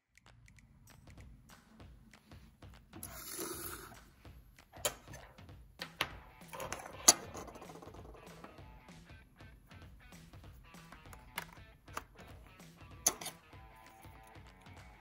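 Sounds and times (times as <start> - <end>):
sharp plastic clicks and taps: 10.7 - 13.4.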